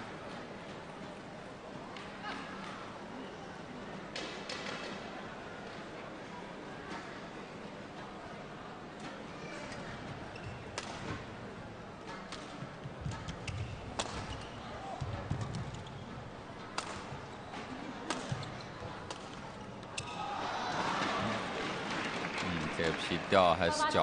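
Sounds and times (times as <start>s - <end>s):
sports hall noise: 0.0s - 24.0s
racket striking shuttlecock: 13.3s - 14.5s, 16.7s - 17.1s.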